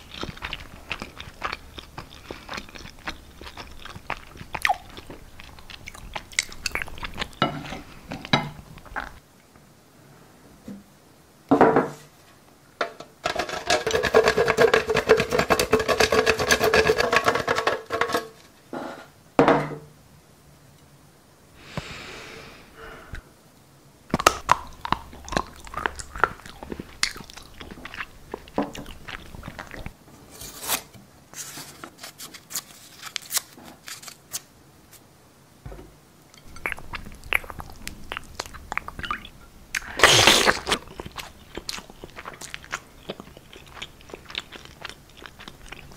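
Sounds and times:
grating on metal box grater: 0:13.4 - 0:17.8.

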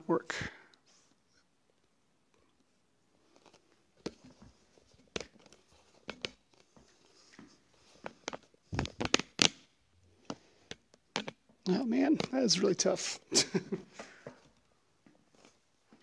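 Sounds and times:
device handling clicks and knocks: 0:05.0 - 0:06.4, 0:08.0 - 0:11.4.

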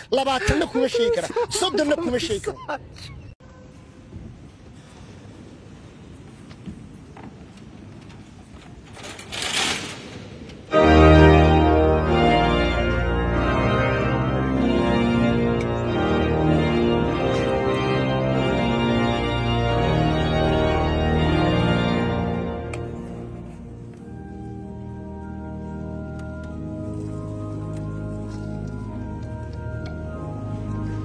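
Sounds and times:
pipe organ chords: 0:10.7 - 0:31.0.

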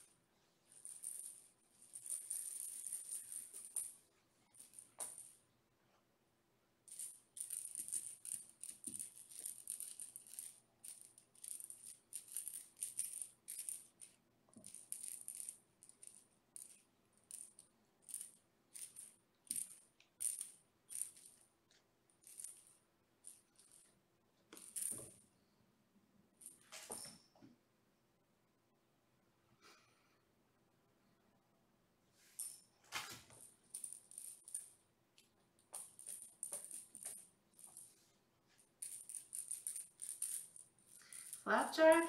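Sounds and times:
cat toy rattling: 0:00.8 - 0:05.3, 0:06.9 - 0:21.4, 0:35.7 - 0:38.0, 0:38.8 - 0:42.0.

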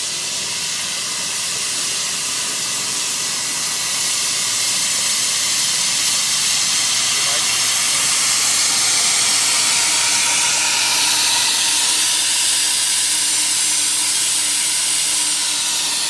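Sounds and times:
steam locomotive hissing steam: 0:00.0 - 0:16.0.

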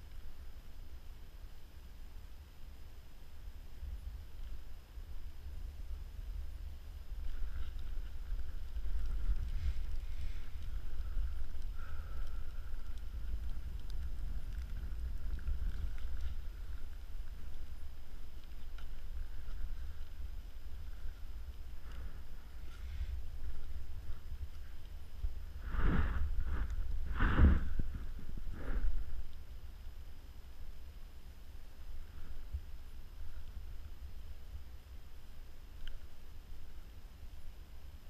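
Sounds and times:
faint clicks: 0:03.9 - 0:05.8, 0:06.5 - 0:25.6, 0:31.8 - 0:35.0, 0:35.6 - 0:37.4
wind buffeting microphone: 0:05.8 - 0:29.3.

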